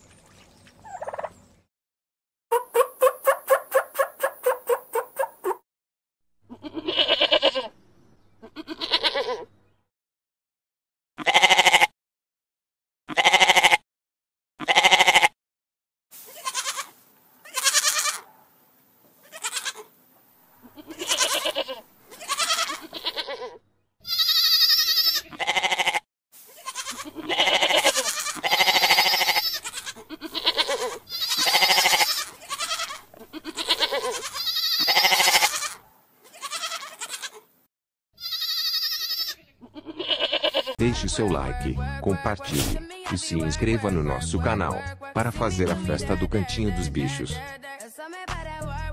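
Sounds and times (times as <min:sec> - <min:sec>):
goats bleating: 0:06.5 - 0:07.7, 0:08.4 - 0:09.5, 0:11.2 - 0:11.9, 0:13.1 - 0:13.8, 0:14.6 - 0:15.4, 0:16.3 - 0:18.3, 0:19.2 - 0:19.9, 0:20.6 - 0:37.4, 0:38.2 - 0:40.9.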